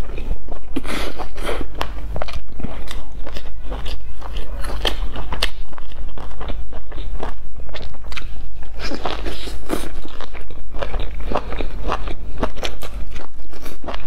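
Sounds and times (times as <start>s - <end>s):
chewing crunchy sandwich: 0.0s - 14.0s.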